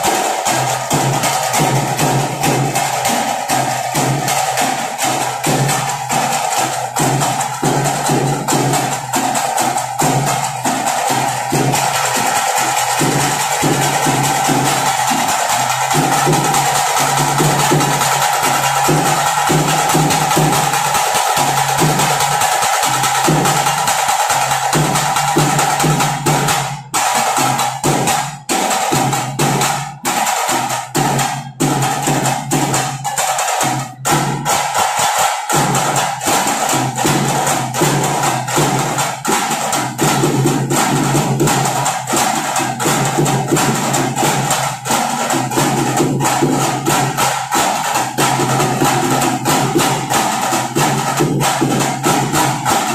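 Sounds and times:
fast dense drumming: 0.0s - 52.9s.

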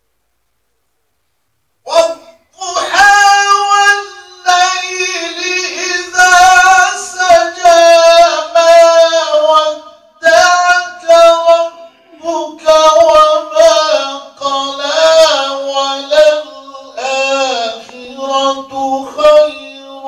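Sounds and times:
man reciting melodically: 1.8s - 20.0s.

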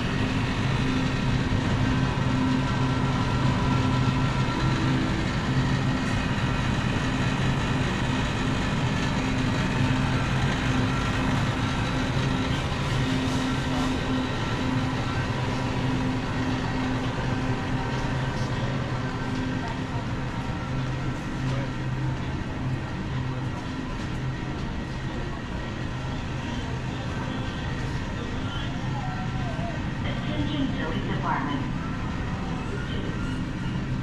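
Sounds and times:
refrigerated display cases humming: 0.0s - 34.0s
store ventilation: 0.0s - 34.0s.

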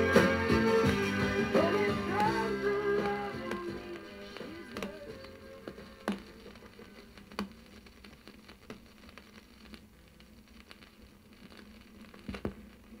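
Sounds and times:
vinyl crackle and hiss: 0.0s - 13.0s
record stylus click: 2.1s - 9.8s.

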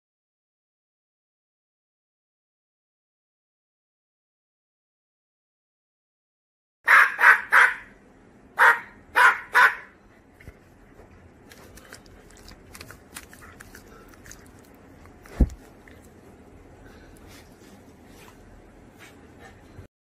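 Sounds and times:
puppy barking: 6.9s - 8.0s, 8.6s - 10.0s.

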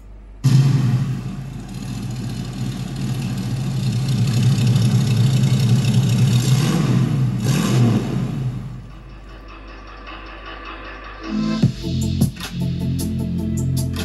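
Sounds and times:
vee eight engine exhaust: 0.0s - 9.8s
engine revving: 0.4s - 9.2s.

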